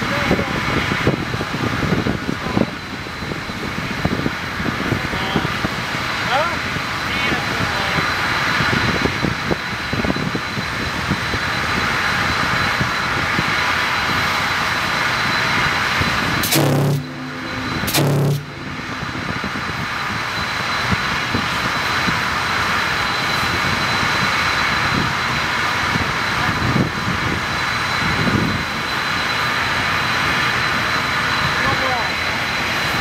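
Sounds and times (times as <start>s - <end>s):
steady rushing noise: 10.8s - 33.0s
steamer whistle blasts: 16.3s - 21.5s.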